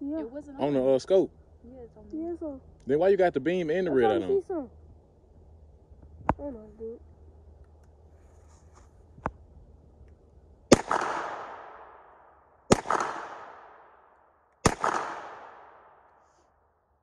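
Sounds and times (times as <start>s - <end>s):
gunshots echoing: 10.7s - 14.0s, 14.6s - 16.1s.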